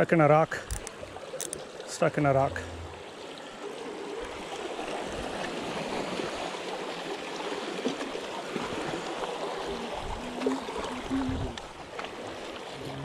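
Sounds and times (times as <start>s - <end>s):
water washing over rocks: 3.1s - 13.0s.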